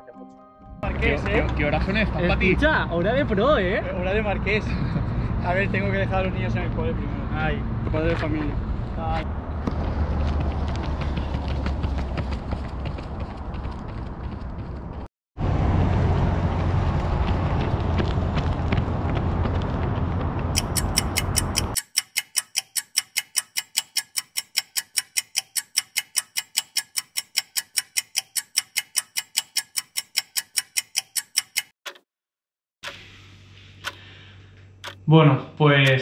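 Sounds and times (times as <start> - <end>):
vehicle and wind rumble: 0.8 - 21.8
clock ticking rapidly: 20.6 - 32.0.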